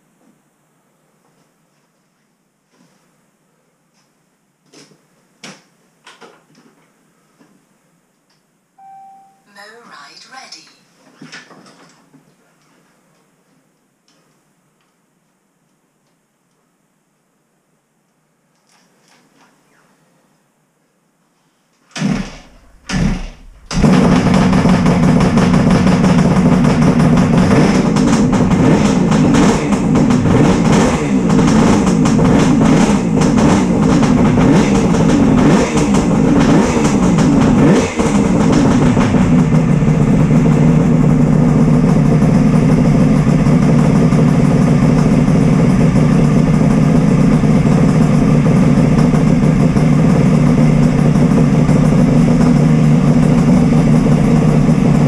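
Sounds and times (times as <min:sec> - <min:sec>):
two-stroke motorcycle engine revving: 0:22.0 - 0:55.0.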